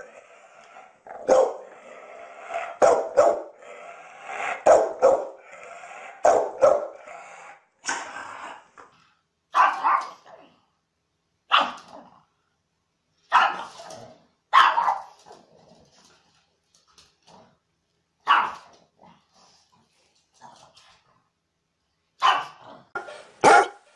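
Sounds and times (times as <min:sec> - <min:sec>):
dog giving drawn-out barks: 0:01.1 - 0:01.7, 0:02.6 - 0:03.6, 0:04.4 - 0:05.4, 0:06.0 - 0:07.0, 0:09.5 - 0:10.2, 0:11.5 - 0:11.9, 0:13.3 - 0:13.8, 0:14.5 - 0:15.2, 0:18.2 - 0:18.7, 0:22.2 - 0:23.9
pug barking: 0:01.2 - 0:01.8, 0:02.6 - 0:03.6, 0:04.4 - 0:05.4, 0:06.0 - 0:07.1, 0:09.5 - 0:10.3, 0:11.5 - 0:11.9, 0:13.3 - 0:15.2, 0:18.2 - 0:18.7, 0:22.2 - 0:23.9.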